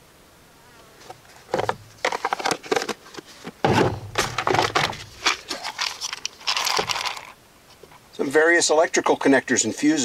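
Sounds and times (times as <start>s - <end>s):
plastic containers and tools rattling: 1.1s - 8.0s.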